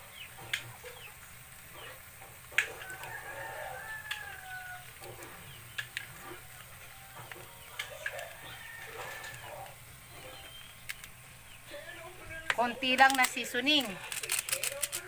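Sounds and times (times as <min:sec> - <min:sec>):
rooster crowing: 0:02.7 - 0:05.1, 0:06.4 - 0:09.8
plastic pack clicking on metal pan: 0:12.5 - 0:15.0.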